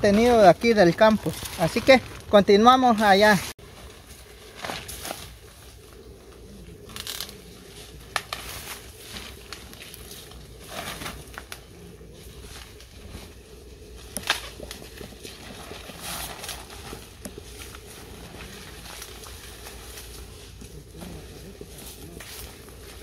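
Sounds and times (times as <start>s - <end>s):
leaves and plastic sack rustling: 0.0s - 23.0s
corn ears snapping: 6.8s - 11.7s, 14.0s - 23.0s.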